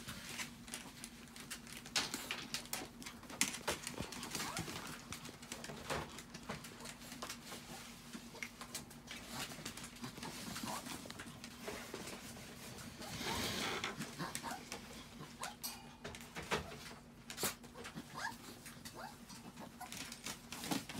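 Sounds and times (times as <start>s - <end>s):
dog claws pattering on floor: 0.0s - 12.6s.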